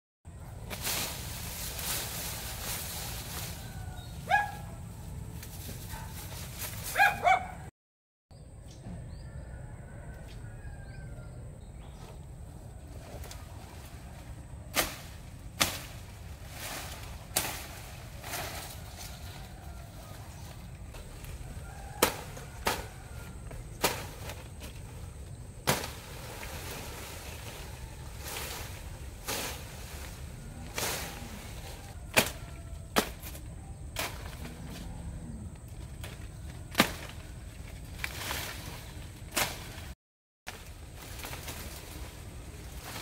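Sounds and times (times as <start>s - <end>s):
machete chopping brush: 0.7s - 3.5s, 14.7s - 18.9s, 21.6s - 24.8s, 25.6s - 27.6s, 32.1s - 34.5s, 36.0s - 37.3s, 39.3s - 41.8s.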